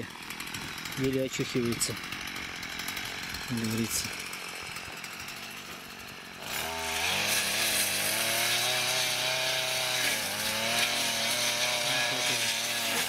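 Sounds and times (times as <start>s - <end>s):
brush cutter engine at high revs: 0.0s - 13.0s.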